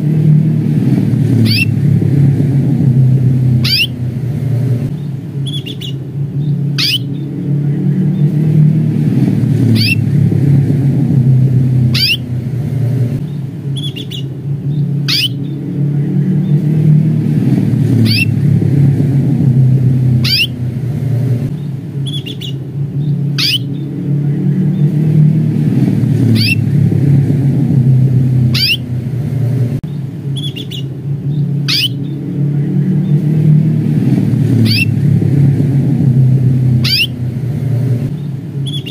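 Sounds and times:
loud low rumble: 0:00.0 - 0:38.9
canary contact calls: 0:06.8 - 0:07.1, 0:15.1 - 0:15.4, 0:23.4 - 0:23.7, 0:28.5 - 0:28.8, 0:31.7 - 0:32.0, 0:36.8 - 0:37.2.

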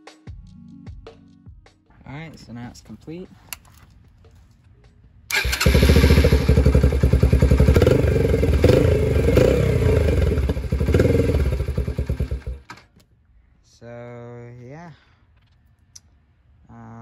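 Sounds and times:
dirt bike engine running: 0:05.3 - 0:12.7.

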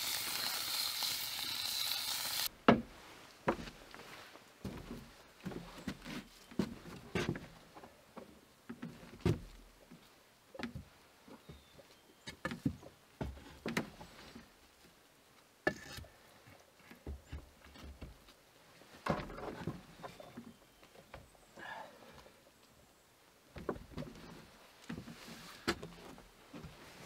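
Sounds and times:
firewood knocking when stacked: 0:02.6 - 0:02.9.

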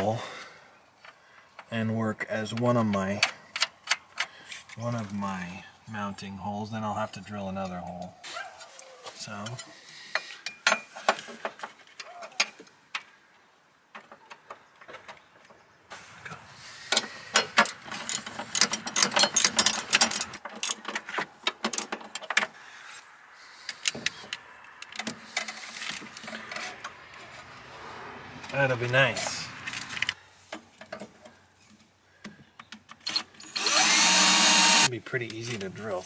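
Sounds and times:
metal tools clinking: 0:17.4 - 0:20.9.

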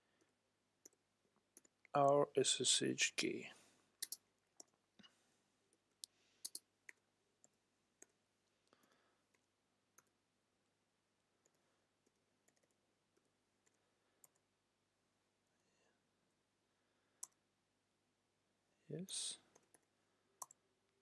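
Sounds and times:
computer keyboard clicks: 0:04.0 - 0:04.8, 0:06.4 - 0:07.0.

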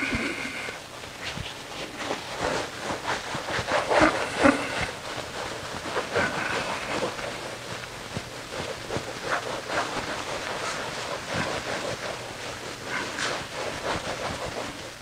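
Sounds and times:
eraser wiping a whiteboard: 0:00.0 - 0:15.0.

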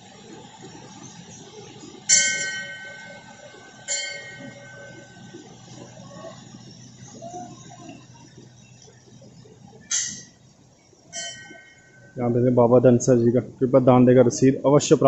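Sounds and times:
flowing water: 0:00.0 - 0:15.0
temple bell ringing: 0:02.0 - 0:06.7, 0:11.1 - 0:12.5.

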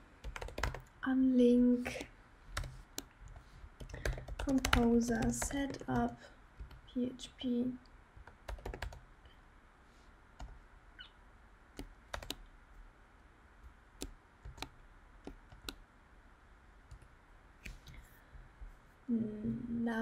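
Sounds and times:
computer keyboard keystrokes: 0:00.2 - 0:00.9, 0:02.6 - 0:06.8, 0:08.2 - 0:09.0, 0:11.8 - 0:12.4, 0:14.0 - 0:15.8.

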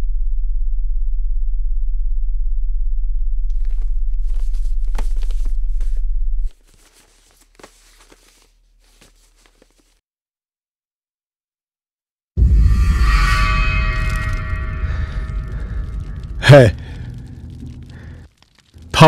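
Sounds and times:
irregular crackling: 0:03.4 - 0:10.0, 0:13.8 - 0:19.0.

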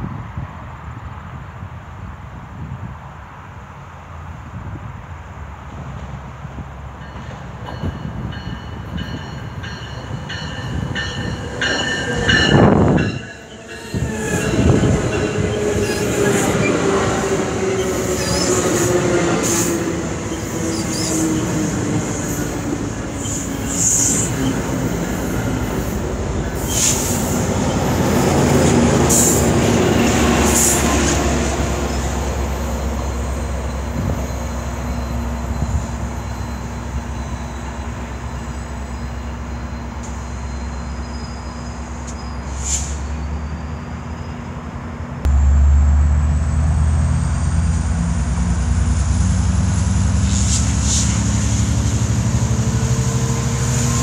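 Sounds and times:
diesel locomotive engine drone: 0:00.0 - 0:54.0
train coaches rolling by: 0:00.0 - 0:54.0
high wheel squeals: 0:08.6 - 0:16.9, 0:17.6 - 0:31.0, 0:31.8 - 0:44.6
loud low rumble: 0:45.2 - 0:49.7.

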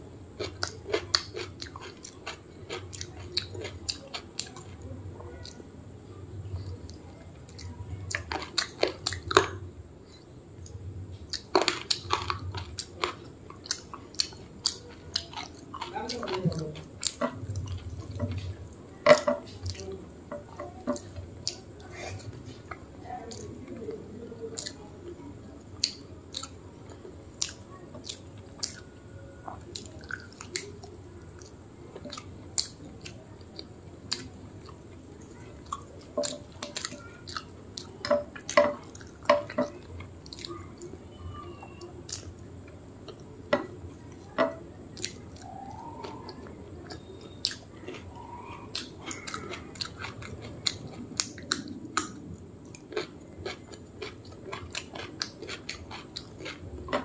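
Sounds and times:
person chewing food: 0:00.3 - 0:05.6, 0:06.5 - 0:25.0, 0:25.6 - 0:41.0, 0:41.6 - 0:57.0.

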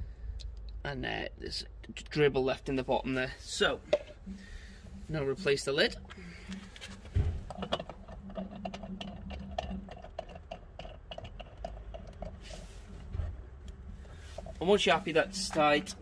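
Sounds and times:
cap knock: 0:03.9 - 0:04.2
cap clicking as screwed: 0:06.0 - 0:12.4.

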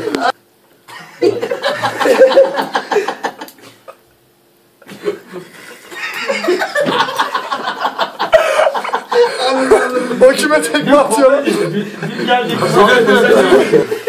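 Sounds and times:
people laughing: 0:00.0 - 0:04.0, 0:04.8 - 0:14.0.

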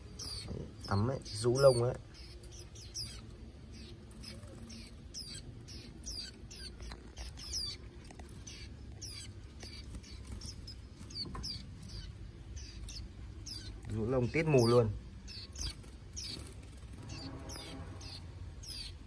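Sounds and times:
birds chirping: 0:00.0 - 0:19.0.

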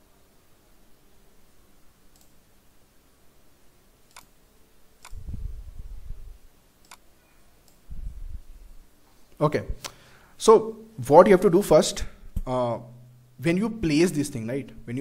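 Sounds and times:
faint room hiss: 0:00.0 - 0:15.0
computer mouse clicks: 0:02.1 - 0:02.4, 0:04.1 - 0:04.3, 0:05.0 - 0:05.2, 0:06.8 - 0:07.0
low muffled rumble: 0:05.1 - 0:06.5, 0:07.9 - 0:08.8.

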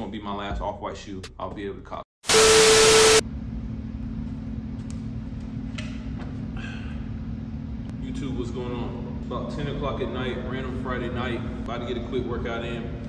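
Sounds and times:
tv static burst: 0:02.2 - 0:03.2
steady beep: 0:02.3 - 0:03.2
steady low hum: 0:02.4 - 0:13.0.

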